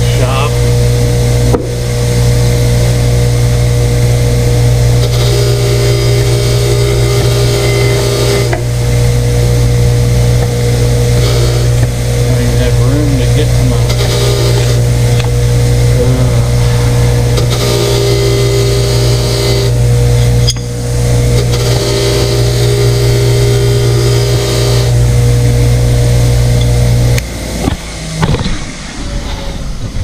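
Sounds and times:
wire wheel scrubbing metal: 0.0s - 27.2s
bench grinder humming: 0.0s - 29.4s.

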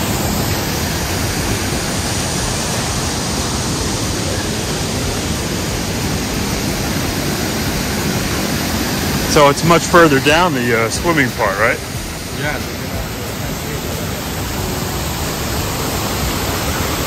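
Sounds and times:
waterfall and river rushing: 0.0s - 17.0s.

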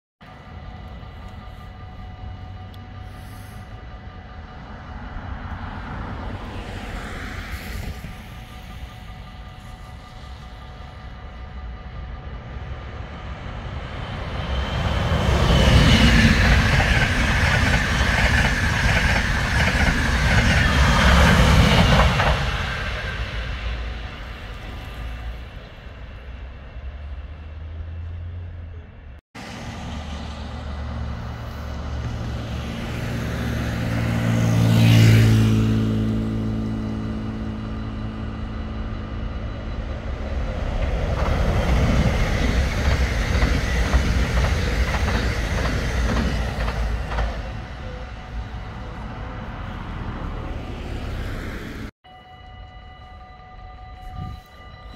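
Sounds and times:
electric train passing with hum: 0.2s - 54.9s
train wheels clattering over rail joints: 40.7s - 47.5s.

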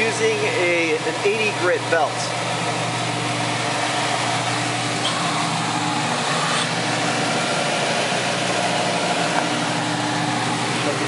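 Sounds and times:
sanding machine humming and hissing: 2.7s - 11.0s.

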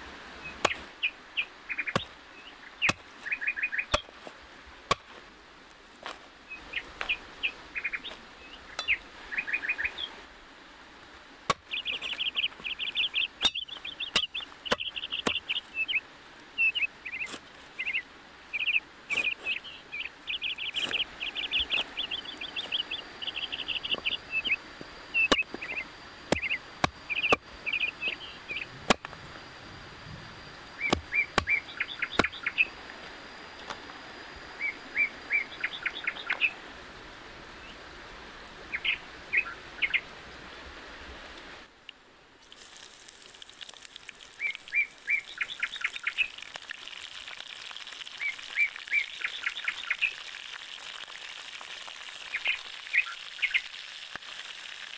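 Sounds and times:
birds chirping: 0.4s - 4.1s, 6.5s - 10.2s, 11.5s - 29.0s, 30.3s - 32.8s, 34.6s - 36.6s, 38.7s - 40.1s, 44.3s - 46.4s, 48.2s - 50.3s, 52.2s - 53.8s.

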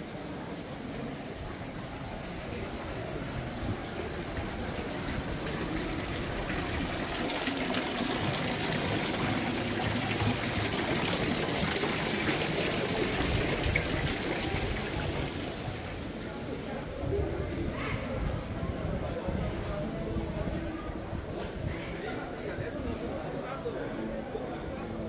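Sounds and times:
fountain water splashing into basin: 0.0s - 16.6s.

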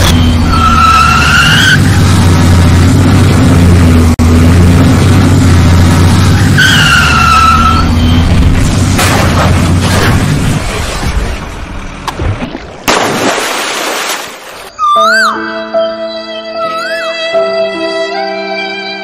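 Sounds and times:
truck engine running: 0.0s - 12.1s.

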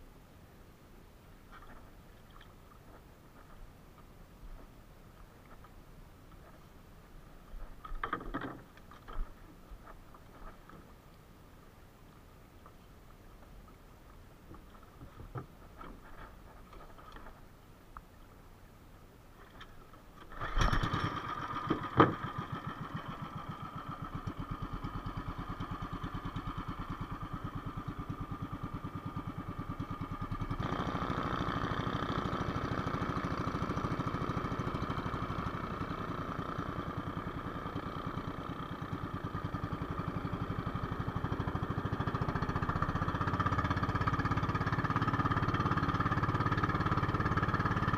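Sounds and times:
faint clicks: 12.1s - 18.1s
boat engine running: 18.5s - 47.9s.

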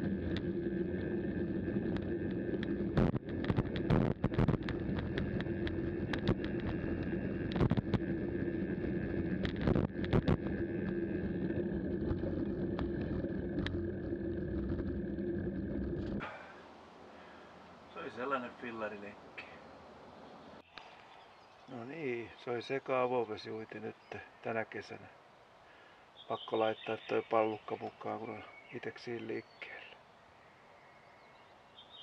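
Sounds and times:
constant hum: 0.0s - 21.1s.

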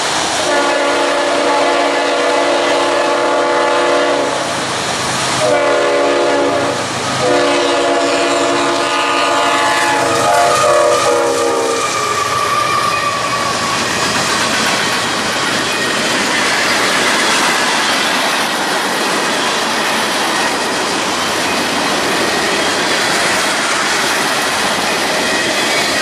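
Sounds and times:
locomotive air horn blasts: 0.4s - 4.6s, 5.4s - 13.3s
train wheel clatter: 9.6s - 26.0s.

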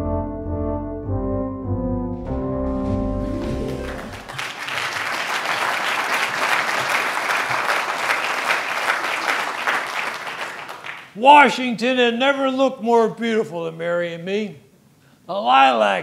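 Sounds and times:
brass music chord: 0.0s - 4.3s
audience applauding: 3.2s - 11.2s.

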